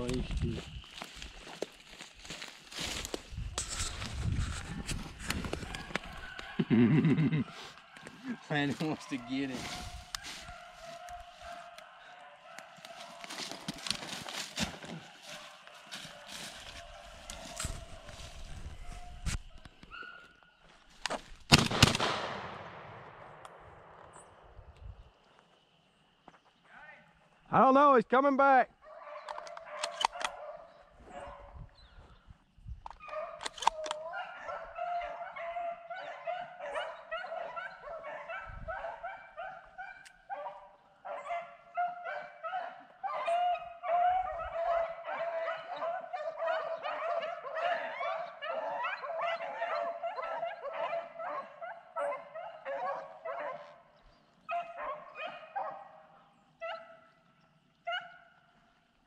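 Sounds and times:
dogs baying and yelping: 3.9 - 20.4, 28.8 - 31.6, 32.9 - 57.1, 57.8 - 58.4.

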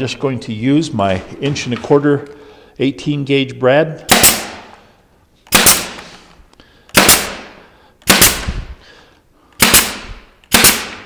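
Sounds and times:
nail gun firing: 4.1 - 4.7, 5.5 - 6.1, 6.9 - 8.7, 9.6 - 11.0.

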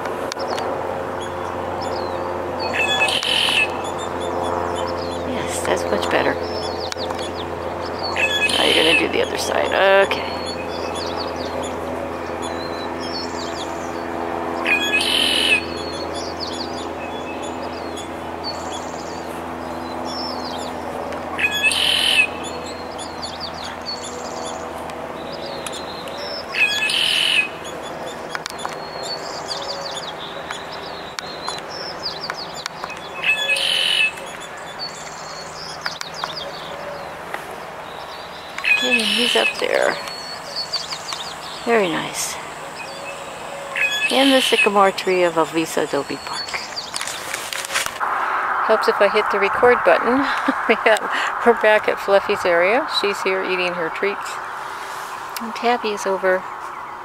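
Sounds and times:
small birds chirping faintly: 0.3 - 48.0
bird singing bright phrase: 1.9 - 3.8, 8.0 - 14.0, 14.6 - 19.2, 21.4 - 24.5, 28.6 - 37.2, 37.9 - 47.0.

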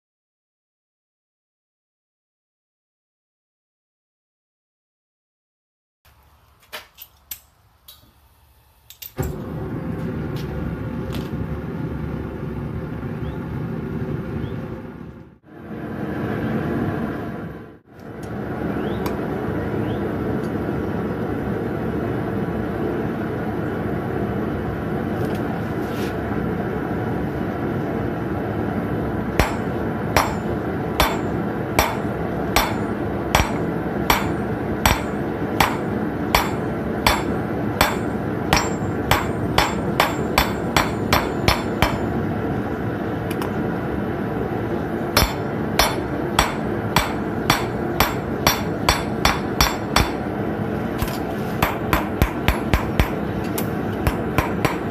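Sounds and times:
hammer striking nail on anvil: 29.4 - 42.1, 45.2 - 50.3, 51.0 - 54.9.

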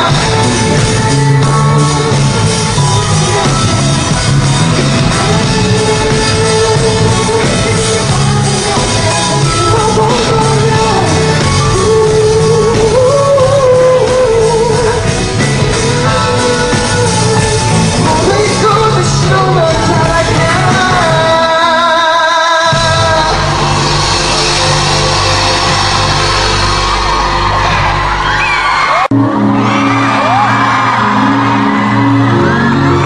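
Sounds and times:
man singing: 0.0 - 24.9
pop backing music with beat: 0.0 - 33.0.

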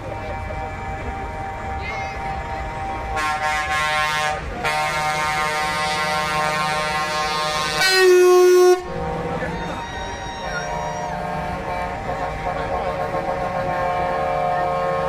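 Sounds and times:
loud air horn blast close by: 0.0 - 15.0
truck air horns blasting: 0.0 - 15.0.

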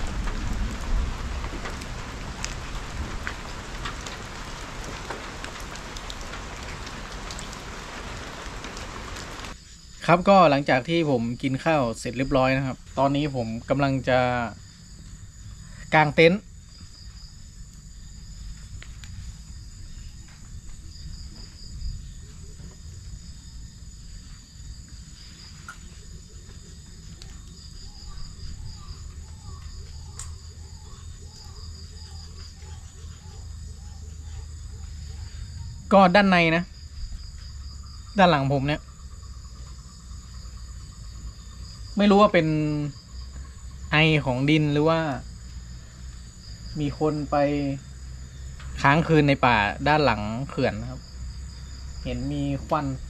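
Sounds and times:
insects chirping: 0.0 - 53.0
raindrops ticking close by: 0.0 - 53.0
steady rain falling: 0.0 - 53.0
faint clicks: 29.6 - 30.4.

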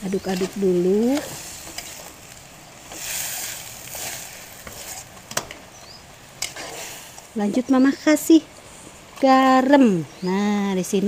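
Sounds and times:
food sizzling in a wok: 0.1 - 7.2.

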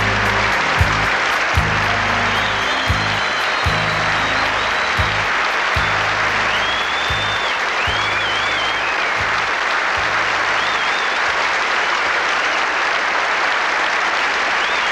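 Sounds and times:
band bass and drum notes: 0.0 - 10.4
shrill whistles: 0.0 - 13.0, 14.2 - 14.9
audience applauding: 0.0 - 14.9.

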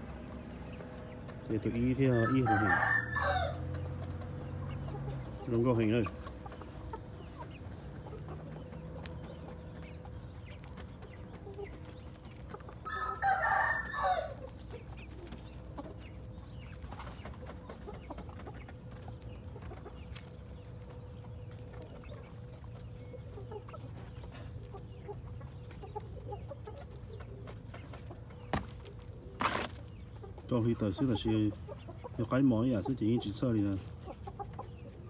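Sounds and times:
rooster crowing: 2.1 - 3.7, 12.9 - 14.4.

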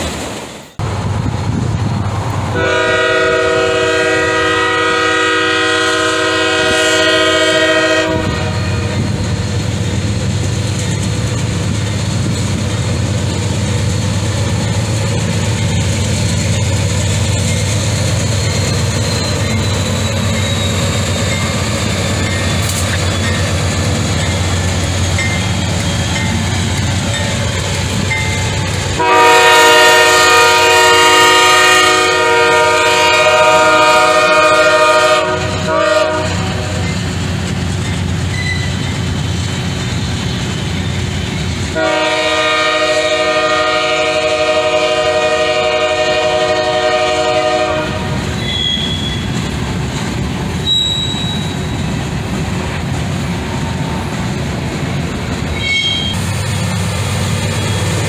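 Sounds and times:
rumble of passing train: 0.0 - 58.0
locomotive air horn: 2.5 - 9.1, 29.0 - 36.8, 41.7 - 49.4, 55.6 - 56.2.

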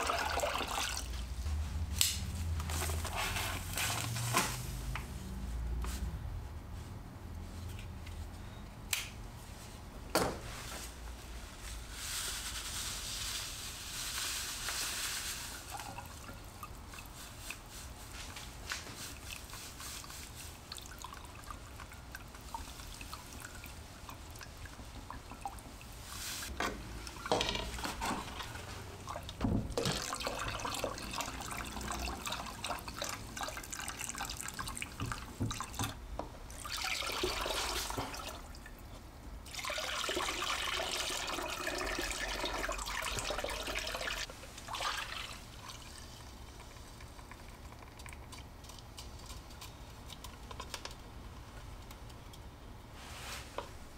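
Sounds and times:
liquid swirling: 12.4 - 35.8, 39.5 - 49.7.

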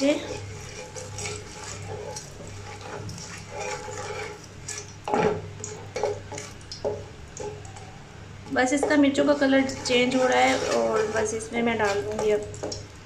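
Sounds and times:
wooden spatula scraping metal pan: 0.0 - 5.4, 8.6 - 12.5.

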